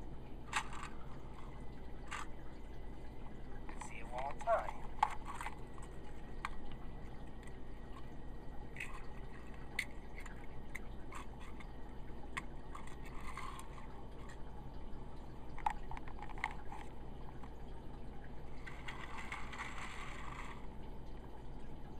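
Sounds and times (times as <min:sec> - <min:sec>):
steady low hum: 0:00.0 - 0:21.9
faint clicks and taps: 0:03.3 - 0:14.5, 0:15.5 - 0:17.7.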